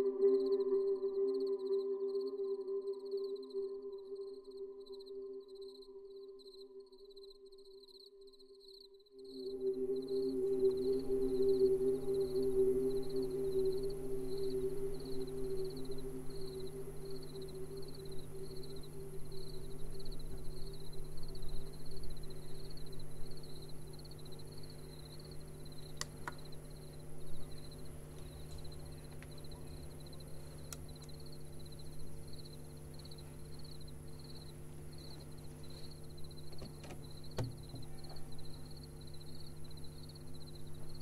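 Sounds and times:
low held tones: 0.0s - 7.7s, 9.1s - 41.0s
crickets chirping: 0.0s - 41.0s
guitar amplifier hum: 9.4s - 41.0s.

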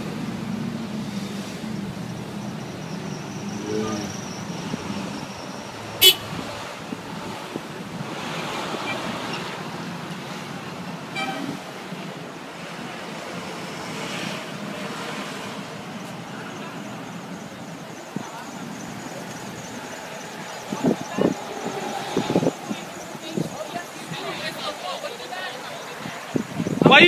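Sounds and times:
street traffic noise: 0.0s - 27.0s
car horn toot: 6.0s - 6.5s, 11.1s - 11.6s.

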